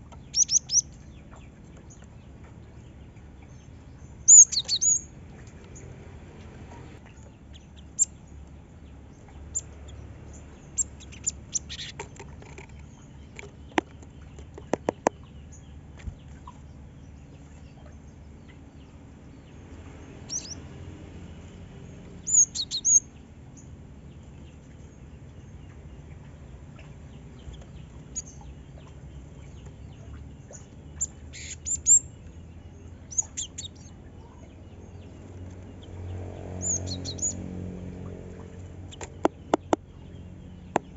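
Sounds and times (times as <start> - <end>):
bird chirping: 0.0 - 6.0, 7.1 - 20.9, 21.5 - 40.9.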